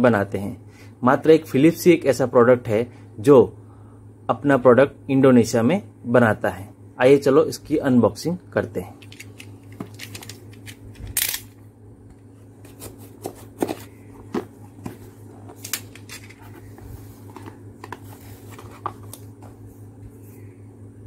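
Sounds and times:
low hum: 0:09.0 - 0:21.0
cardboard scraping rustles: 0:12.6 - 0:15.6, 0:16.2 - 0:19.8.

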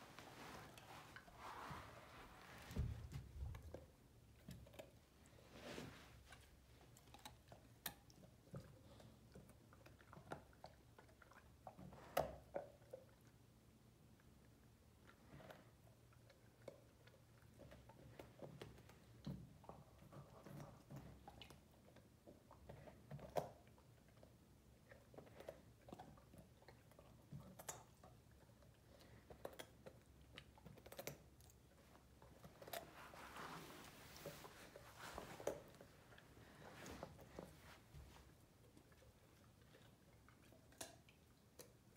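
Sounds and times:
rustling: 0:00.0 - 0:07.4, 0:31.8 - 0:40.8
puppy crunching carrot: 0:38.6 - 0:41.9.

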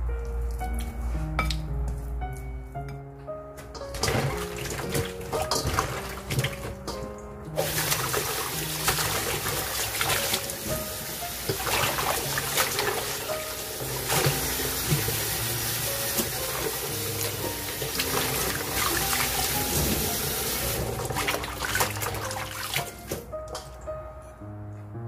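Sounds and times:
background music: 0:00.0 - 0:25.0
tap running into metal bowl: 0:03.8 - 0:15.4, 0:16.0 - 0:23.8.

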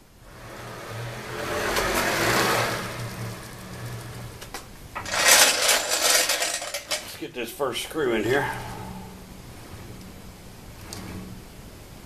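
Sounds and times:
bearing rolling along steel rail: 0:00.2 - 0:12.0
loud metallic clatter: 0:05.0 - 0:07.2.

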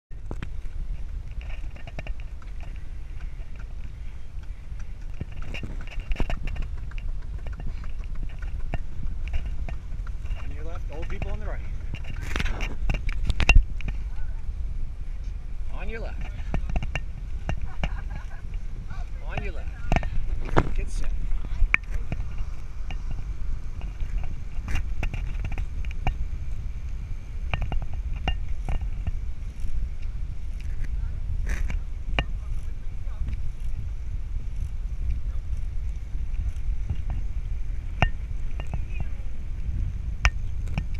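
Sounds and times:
wheels rolling on pavement: 0:00.1 - 0:40.9
wind rumble on microphone: 0:00.1 - 0:40.9
bicycle clicks and rattles: 0:00.2 - 0:14.1, 0:15.7 - 0:40.9.

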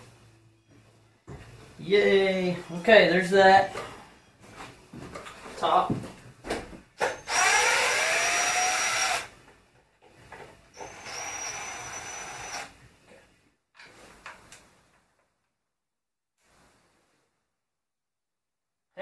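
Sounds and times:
cordless impact driver whining: 0:07.0 - 0:09.4, 0:10.7 - 0:12.8.

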